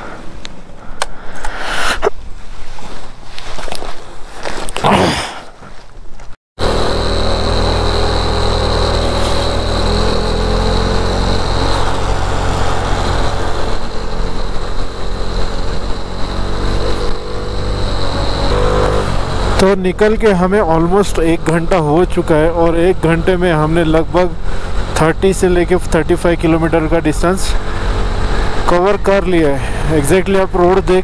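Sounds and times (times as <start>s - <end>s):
motorcycle engine running: 6.6s - 31.0s.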